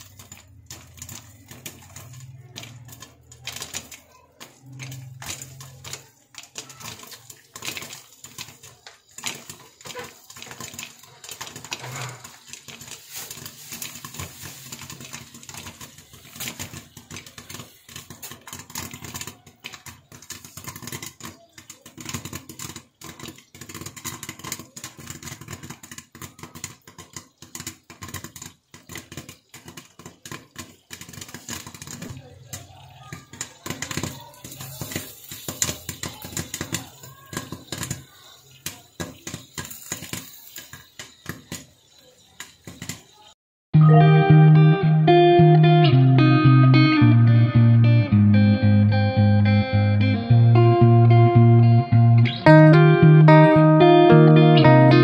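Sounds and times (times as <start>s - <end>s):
popcorn popping in a pot: 0.0s - 43.4s.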